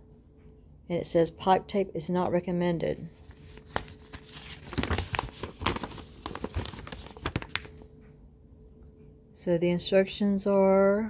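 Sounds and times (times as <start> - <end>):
paper rustling and crinkling: 3.2 - 7.8.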